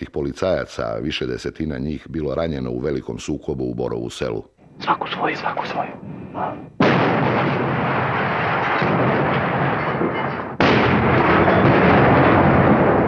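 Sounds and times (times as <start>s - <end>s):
heavy gunfire: 6.8s - 13.0s.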